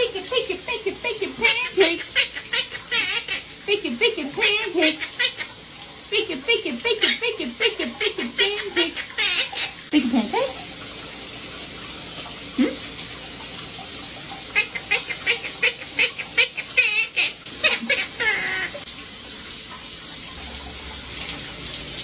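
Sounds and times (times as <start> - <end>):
shower running: 0.0 - 22.0
parakeet talking: 0.8 - 5.5, 6.2 - 9.8, 14.6 - 18.8.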